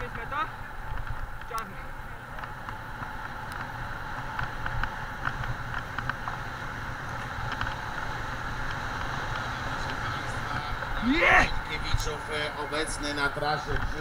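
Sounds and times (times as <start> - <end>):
bicycle rattling over dirt track: 11.7 - 14.0.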